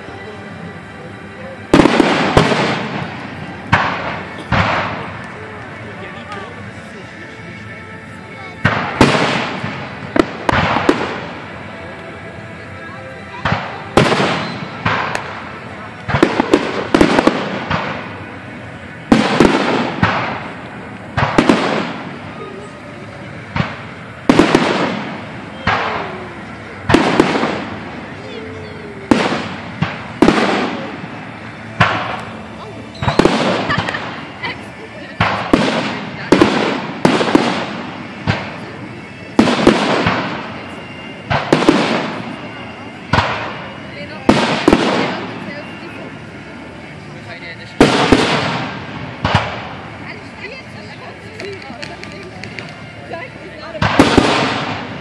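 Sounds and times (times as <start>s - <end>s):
crackling hiss: 0.0s - 55.0s
firework shells bursting: 1.7s - 6.8s, 13.4s - 22.4s, 23.4s - 28.3s, 29.1s - 45.7s, 51.1s - 52.9s.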